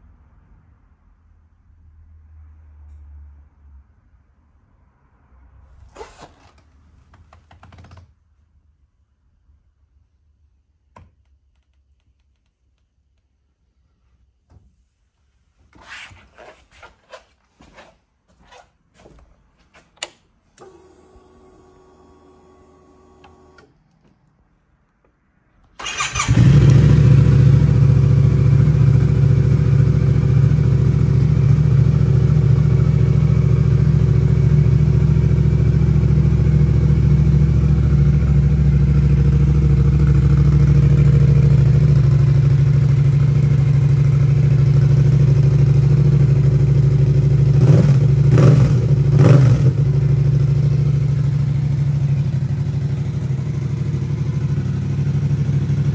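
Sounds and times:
motorcycle engine starting and idling: 0:05.8 - 0:08.1, 0:20.0 - 0:24.2, 0:25.7 - 0:55.9.

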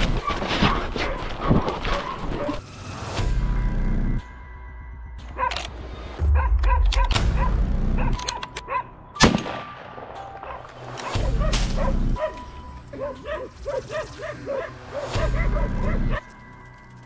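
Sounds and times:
dogs barking: 0:00.0 - 0:02.6, 0:05.3 - 0:09.0, 0:10.4 - 0:16.3
gunshot: 0:09.2 - 0:09.8.

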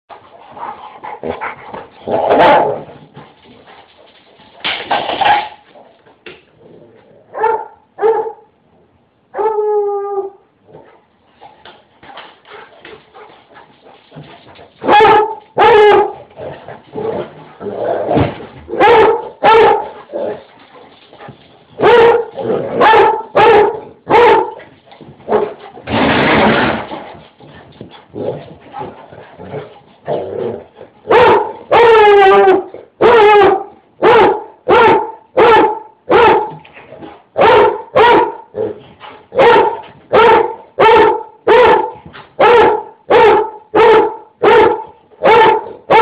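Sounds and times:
dog barking loudly: 0:02.1 - 0:02.9, 0:07.3 - 0:08.5, 0:14.8 - 0:16.3, 0:18.7 - 0:20.4, 0:21.8 - 0:24.7, 0:31.1 - 0:36.6, 0:37.4 - 0:38.5, 0:39.3 - 0:46.0
dog baying: 0:14.8 - 0:16.3, 0:21.2 - 0:24.6.

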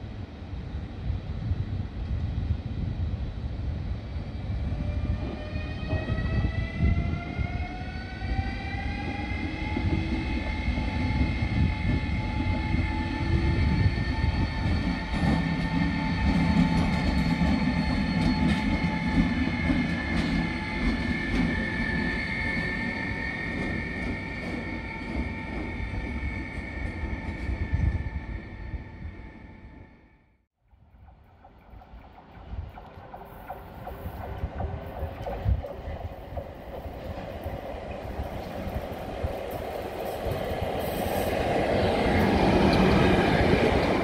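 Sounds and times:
electric locomotive motor whine: 0:00.1 - 0:30.4.

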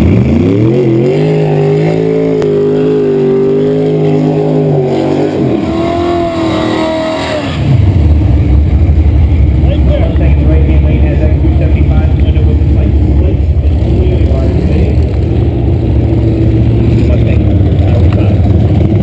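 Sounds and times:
car engine revving: 0:00.0 - 0:19.0
rough low rumble: 0:00.0 - 0:19.0.

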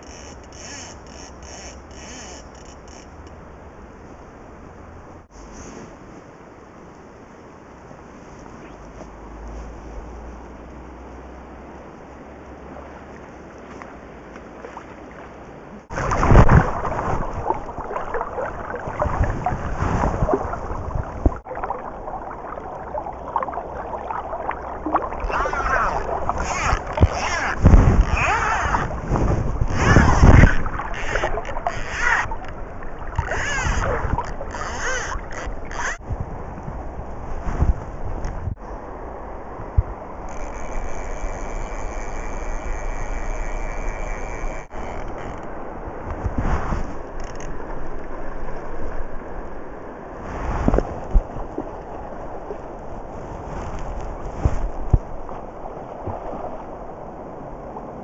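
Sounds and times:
flowing river: 0:00.0 - 0:58.0
river water rushing: 0:10.8 - 0:36.0
wind buffeting microphone: 0:15.6 - 0:40.4, 0:44.7 - 0:58.0.

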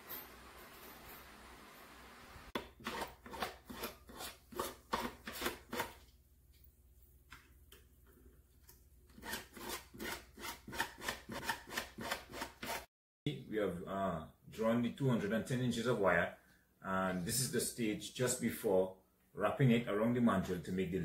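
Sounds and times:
hand file rasping on metal wire: 0:09.2 - 0:12.9.

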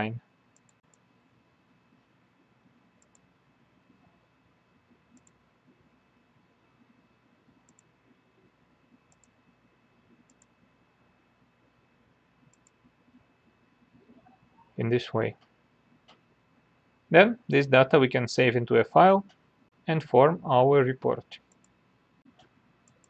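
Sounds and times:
computer mouse clicks: 0:00.5 - 0:01.1, 0:03.0 - 0:03.3, 0:05.1 - 0:05.4, 0:07.6 - 0:07.9, 0:09.0 - 0:09.4, 0:10.1 - 0:10.6, 0:12.5 - 0:12.9, 0:21.4 - 0:23.0.

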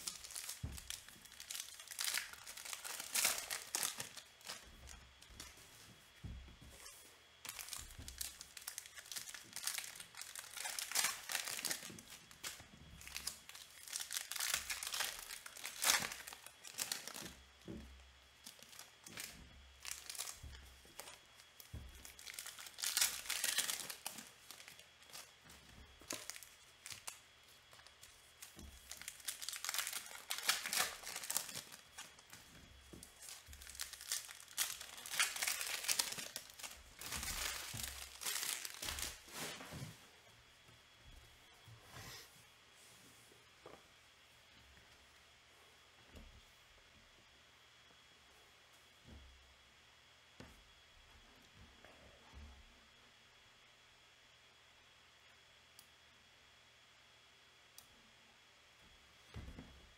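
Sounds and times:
plastic wrappers tearing and crinkling: 0:00.0 - 0:05.6, 0:06.6 - 0:17.8, 0:18.4 - 0:25.3, 0:26.0 - 0:39.7.

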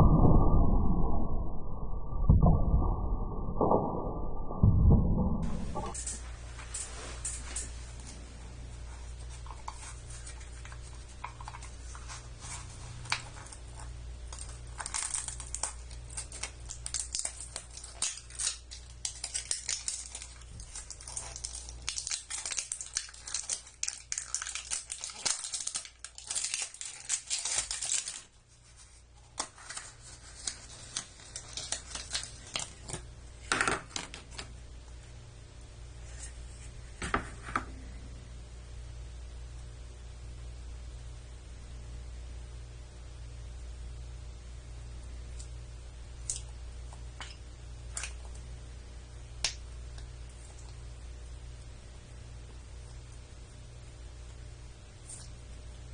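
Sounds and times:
plastic wrap crinkling and tearing: 0:09.7 - 0:33.1
sharp plastic crack: 0:14.4 - 0:28.3.

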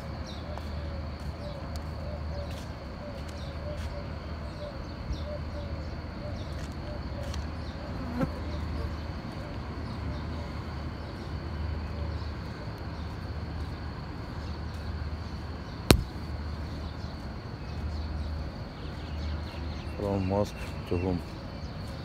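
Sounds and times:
sharp click: 0:15.9 - 0:16.2.

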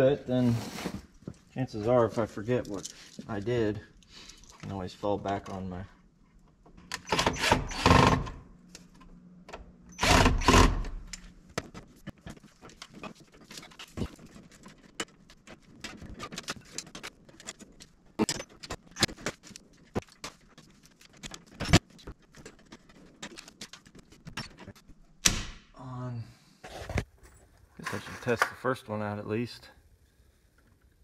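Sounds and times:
tools and screws rattling: 0:02.2 - 0:05.8, 0:09.9 - 0:25.0.

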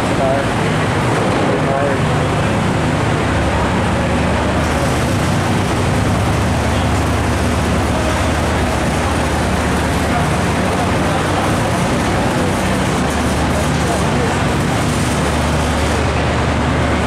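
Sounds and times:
vehicle engines rumbling: 0:00.0 - 0:17.0.

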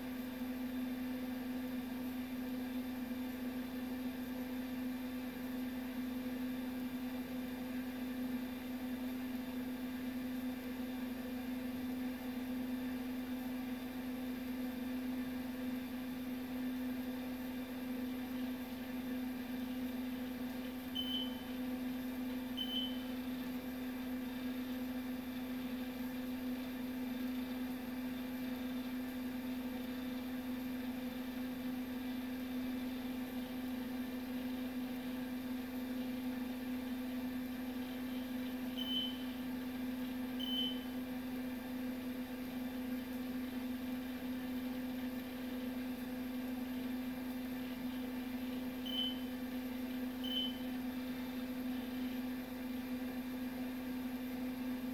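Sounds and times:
short high beeps: 0:22.6 - 0:23.0.

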